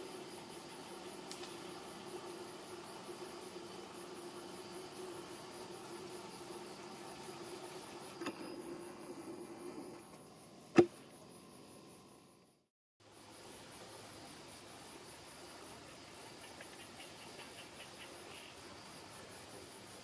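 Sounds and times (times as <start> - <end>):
insects chirping trill: 0.0 - 20.0
sharp click: 10.7 - 11.0.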